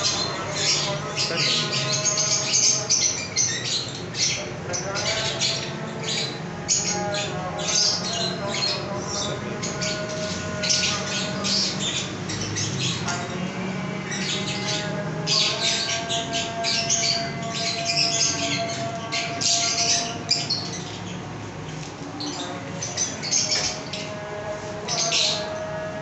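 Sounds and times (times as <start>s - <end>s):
lovebirds squawking and chattering: 0.0s - 26.0s.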